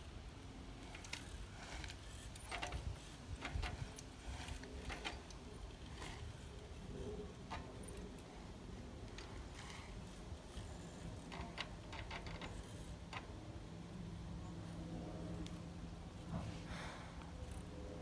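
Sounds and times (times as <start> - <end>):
low wind rumble on microphone: 0.0 - 11.2
bicycle hub clicking: 0.4 - 13.8, 17.2 - 18.0.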